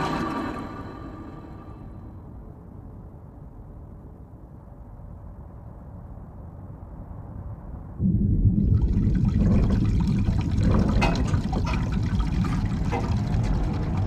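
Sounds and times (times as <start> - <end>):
water rushing through pipes: 0.0 - 2.1, 8.2 - 14.0.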